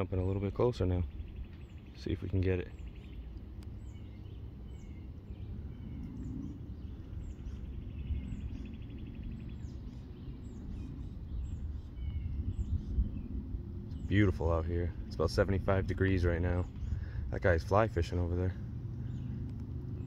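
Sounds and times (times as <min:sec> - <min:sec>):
small birds chirping: 0:00.0 - 0:20.0
steady low background noise: 0:00.0 - 0:20.0.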